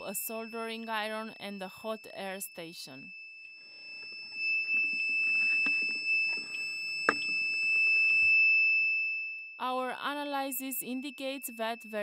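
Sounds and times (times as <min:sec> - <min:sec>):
high-pitched electronic buzzer tone: 0:00.0 - 0:08.2.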